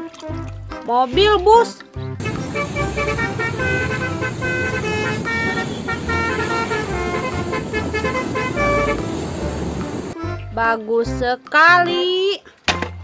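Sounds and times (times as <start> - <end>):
low rumble: 2.2 - 10.2
musical air horn: 2.2 - 10.2.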